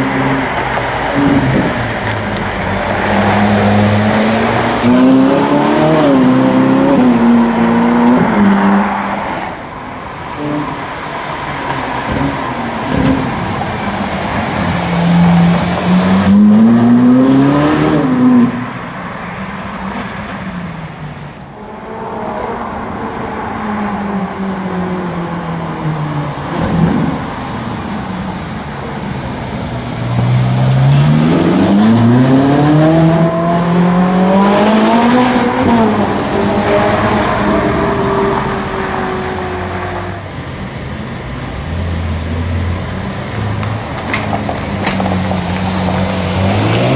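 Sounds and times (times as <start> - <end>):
sports car engine accelerating: 29.6 - 40.2.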